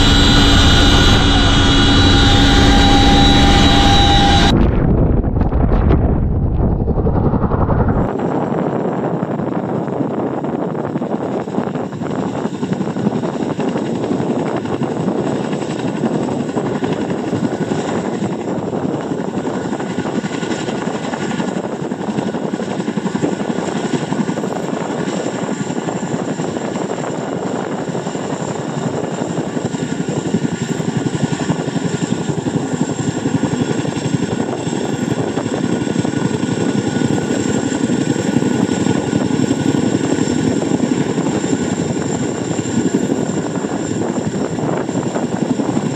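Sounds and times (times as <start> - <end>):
thin high whine: 0.0 - 8.1
helicopter rotor and engine: 0.0 - 45.9.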